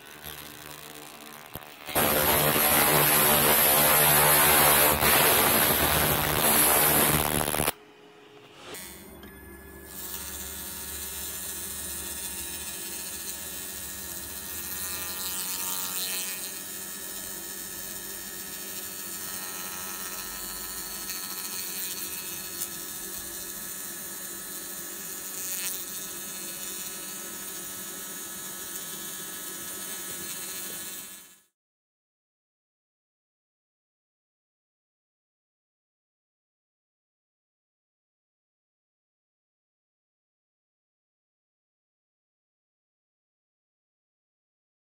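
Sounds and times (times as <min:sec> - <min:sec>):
laser cleaner buzzing hiss: 0:00.0 - 0:07.7, 0:09.9 - 0:31.5.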